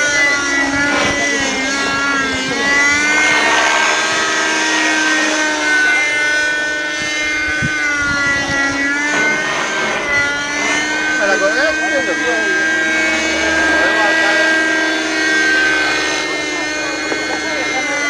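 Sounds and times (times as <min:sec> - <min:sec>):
model helicopter whine: 0:00.0 - 0:18.0.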